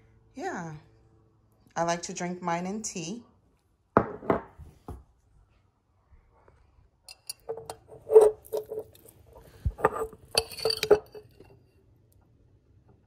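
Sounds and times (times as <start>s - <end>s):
metal spoon clinking on glass jar: 7.1s - 9.1s, 9.8s - 11.6s.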